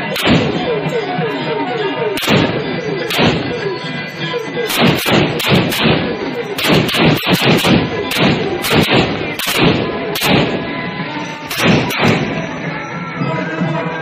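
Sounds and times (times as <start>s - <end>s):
firecrackers bursting: 0.0s - 1.0s, 2.2s - 3.7s, 4.7s - 10.8s, 11.5s - 12.6s.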